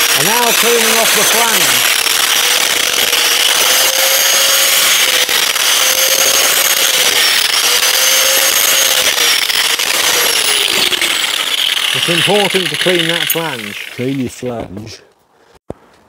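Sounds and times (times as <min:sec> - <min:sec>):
angle grinder grinding metal: 0:00.0 - 0:15.0.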